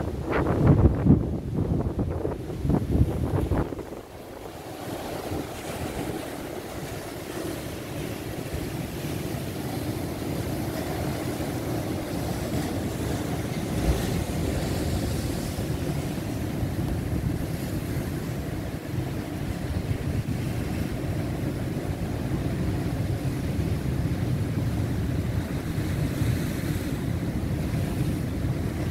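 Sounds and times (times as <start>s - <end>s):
surf breaking over rocky shore: 0.0s - 28.9s
wind buffeting microphone: 0.0s - 28.9s.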